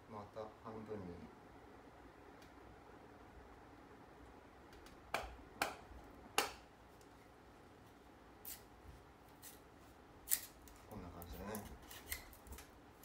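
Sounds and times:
bamboo cracking as it splits: 10.3 - 10.8.

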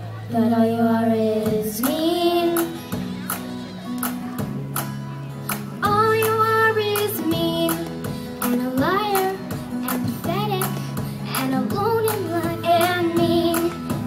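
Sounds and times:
girl singing into microphone: 0.3 - 3.0, 5.8 - 14.0
instrumental music with steady beat: 1.8 - 14.0.

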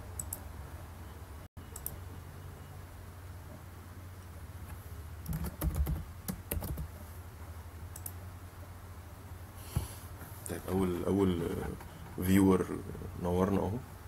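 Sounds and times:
low steady hum: 0.0 - 14.0
computer keyboard typing: 5.2 - 6.9.

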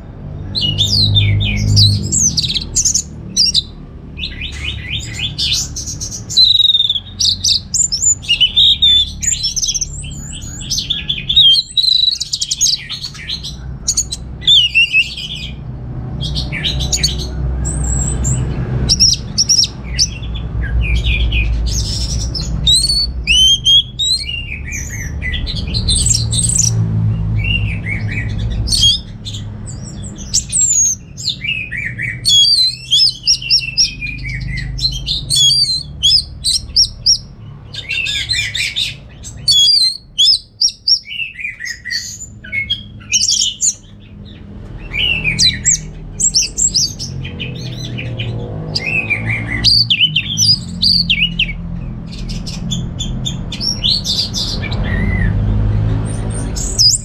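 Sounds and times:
thrush singing whistled phrases: 0.6 - 15.6, 20.8 - 26.8, 29.7 - 37.3, 37.9 - 43.8.

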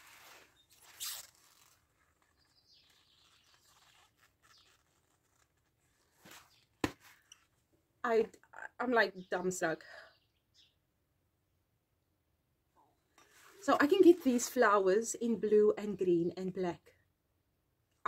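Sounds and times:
handling rustle: 0.0 - 7.6.

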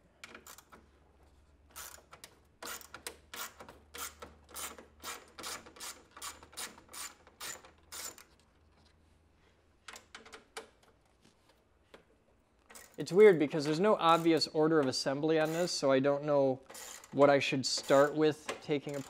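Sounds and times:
socket ratchet clicking: 1.7 - 8.3.

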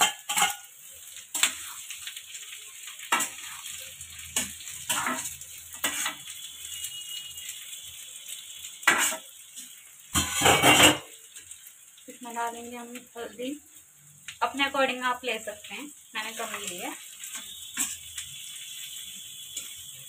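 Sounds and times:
oil sizzling: 0.0 - 20.0
spatula scraping iron pan: 17.3 - 18.0.

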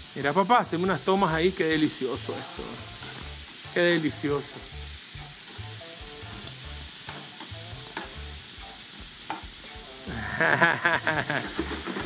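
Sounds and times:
meat sizzling in oil: 0.0 - 12.0
metal tongs clicking on pan: 6.3 - 8.2.

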